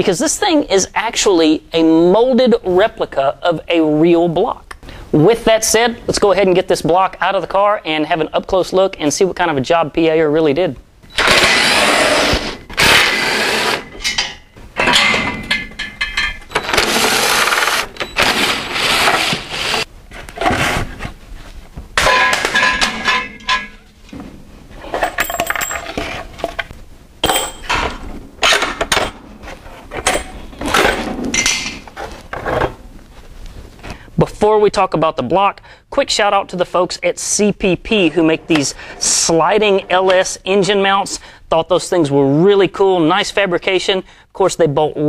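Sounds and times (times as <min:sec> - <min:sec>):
bolts clinking and knocking: 0:13.9 - 0:16.8, 0:22.0 - 0:24.2, 0:24.9 - 0:29.2, 0:29.9 - 0:31.9.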